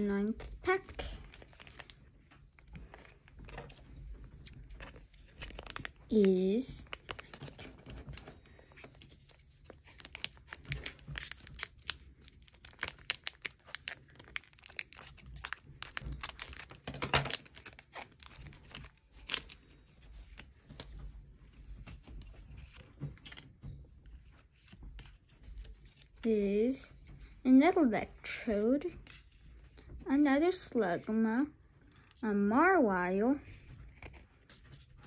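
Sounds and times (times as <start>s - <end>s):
foil wrapper crinkling: 0.2s - 21.0s.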